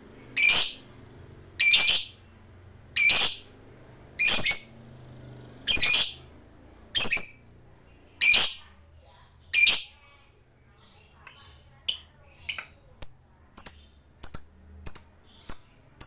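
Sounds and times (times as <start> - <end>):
bird giving sharp high calls: 0.3 - 0.9, 1.6 - 2.2, 3.0 - 3.5.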